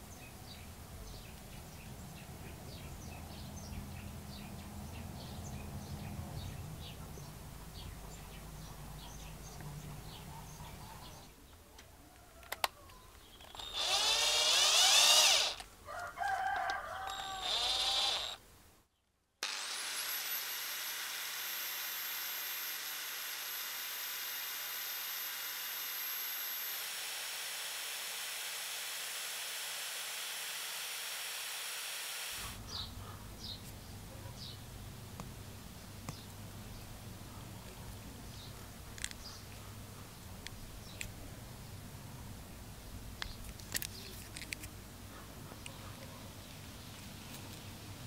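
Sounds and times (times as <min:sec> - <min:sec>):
electric drill running: 0:13.4 - 0:15.7, 0:17.0 - 0:18.4, 0:19.4 - 0:32.6
rooster crowing: 0:15.8 - 0:18.2.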